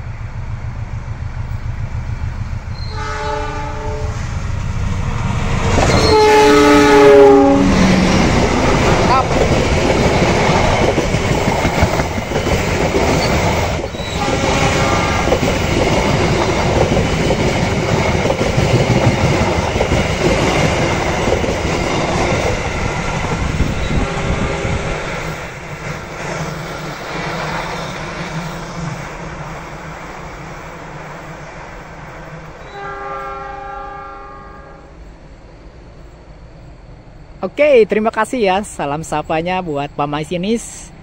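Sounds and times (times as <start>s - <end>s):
train wheels clattering on rails: 7.6s - 29.1s.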